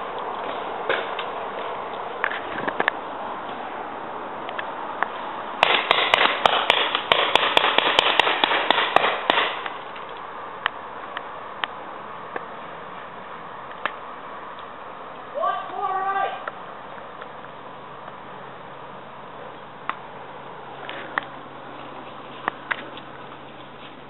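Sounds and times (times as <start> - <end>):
paintball markers firing pops: 5.6 - 9.8.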